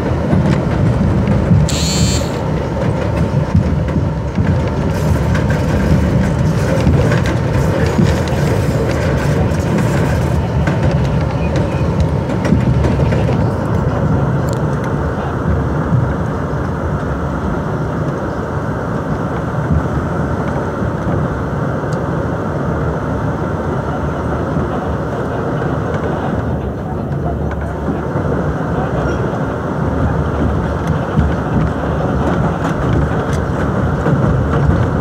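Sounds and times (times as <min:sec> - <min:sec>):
train wheels rumbling on rail: 0:00.0 - 0:35.0
high hiss: 0:01.7 - 0:02.5.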